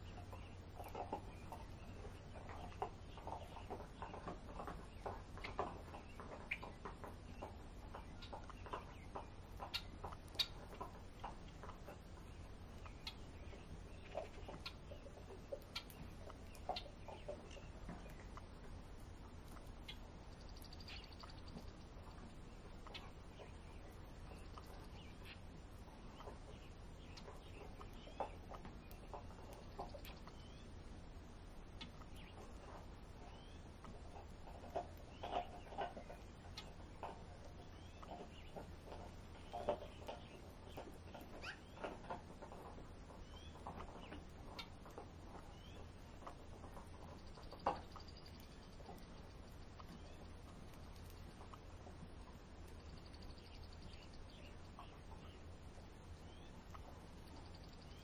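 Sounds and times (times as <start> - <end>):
songbirds chipping and clucking: 0.0 - 58.0
thin whistled bird notes: 19.5 - 25.4, 39.4 - 41.9.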